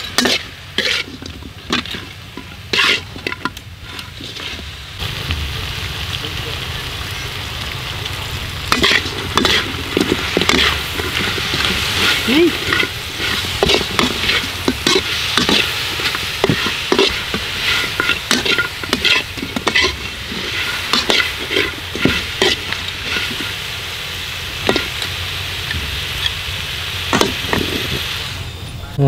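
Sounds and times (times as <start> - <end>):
metal spatula scraping a wok: 0.0 - 4.8, 8.7 - 23.8, 24.5 - 25.2
hot oil sizzling: 0.0 - 29.0.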